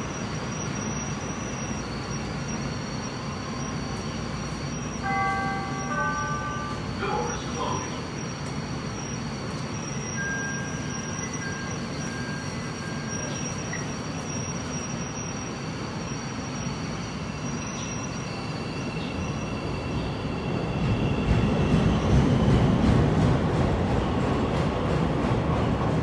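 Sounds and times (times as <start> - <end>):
train running hum: 0.0 - 26.0
thin high tones: 0.4 - 19.8.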